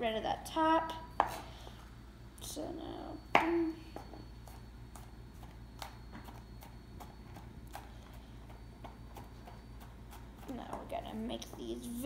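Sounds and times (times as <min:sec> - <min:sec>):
knife chopping on plastic board: 0:01.2 - 0:01.4.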